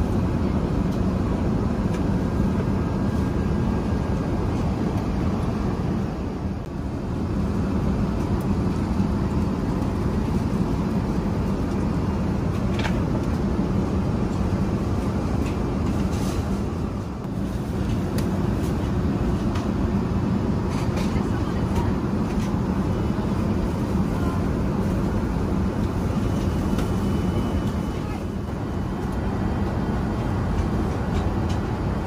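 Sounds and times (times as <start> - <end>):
airplane cabin air and engine drone: 0.0 - 32.0.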